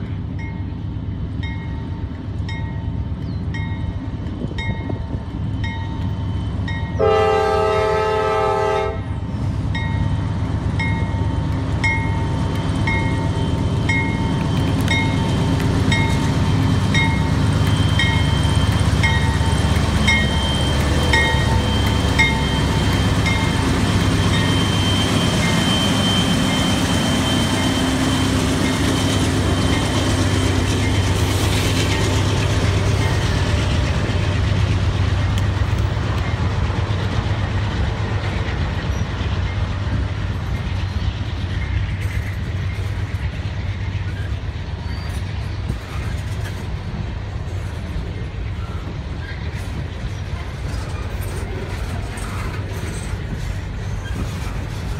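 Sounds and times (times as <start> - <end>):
diesel locomotive engine rumble: 0.0 - 54.9
train wheel noise: 0.0 - 54.9
crossing signal ringing: 9.8 - 34.3
empty freight cars rolling: 10.8 - 54.9.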